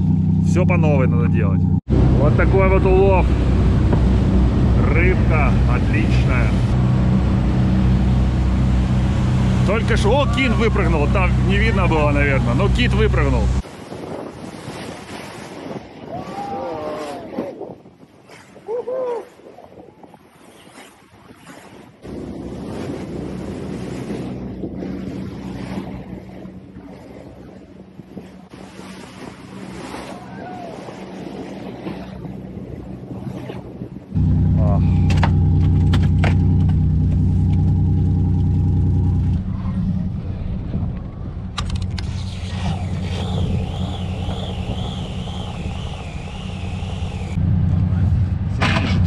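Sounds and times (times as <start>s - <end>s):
boat engine running: 0.0s - 13.6s, 22.0s - 49.0s
water rushing from wake: 1.8s - 49.0s
wind buffeting microphone: 1.8s - 49.0s
fishing reel whining: 42.0s - 47.4s.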